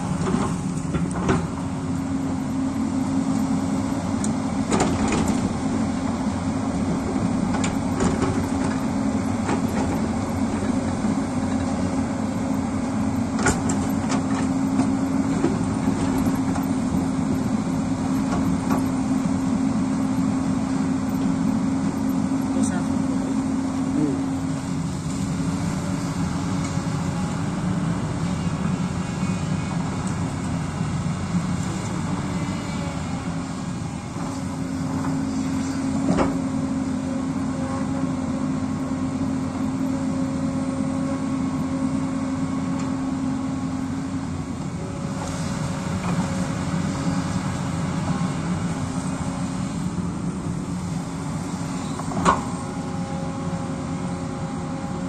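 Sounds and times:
excavator engine running: 0:00.0 - 0:55.0
hydraulic whine: 0:23.9 - 0:55.0.

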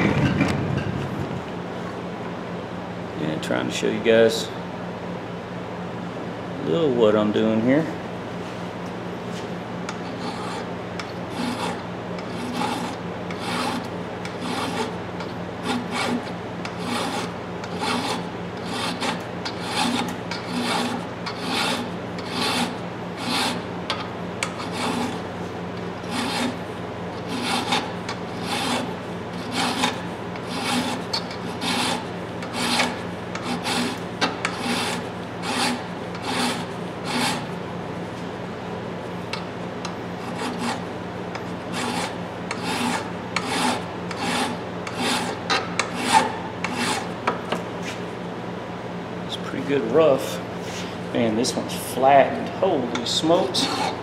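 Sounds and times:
file rasping on steel: 0:10.0 - 0:23.7, 0:24.4 - 0:25.2, 0:26.0 - 0:26.6, 0:27.2 - 0:37.6, 0:40.2 - 0:40.9, 0:41.6 - 0:47.2, 0:52.9 - 0:54.0.

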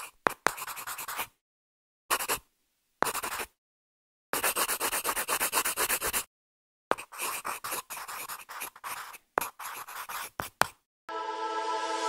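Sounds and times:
pencil scratching on paper: 0:00.0 - 0:01.4, 0:02.1 - 0:02.4, 0:03.0 - 0:03.6, 0:04.4 - 0:06.3, 0:06.9 - 0:10.8.

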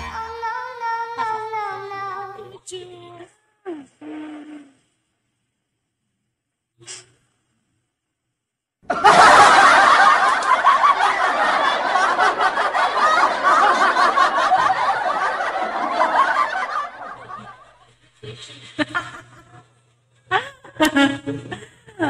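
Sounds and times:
laughter: 0:08.8 - 0:22.0.

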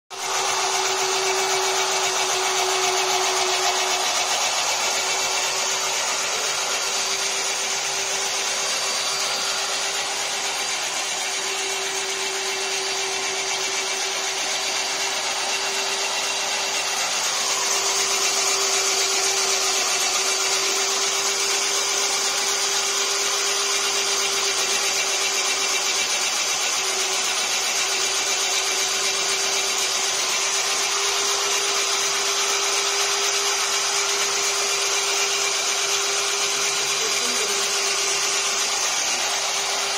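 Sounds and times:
chaff cutter running: 0:00.1 - 0:39.9
cutter chopping dry straw: 0:36.9 - 0:37.6.

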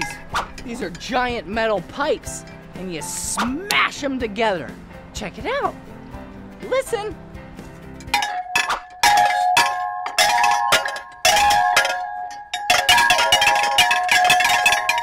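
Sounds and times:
metal pipe chimes clanging: 0:00.0 - 0:01.4, 0:08.0 - 0:15.0.

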